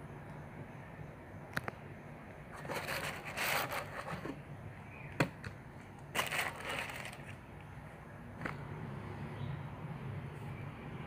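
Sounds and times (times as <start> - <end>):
tissue paper crinkling: 6.2 - 7.3.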